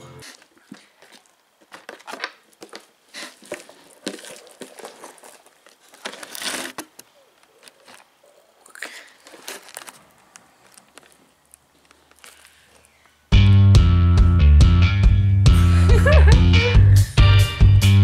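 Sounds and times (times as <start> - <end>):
slime squelching and crackling: 0.2 - 6.8, 7.4 - 13.1.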